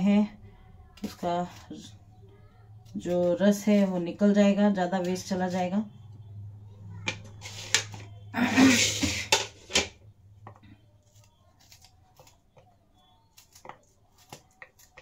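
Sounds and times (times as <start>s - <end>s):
plate scraping on stone countertop: 7.2s - 9.9s
knife cutting tomato: 13.3s - 15.0s.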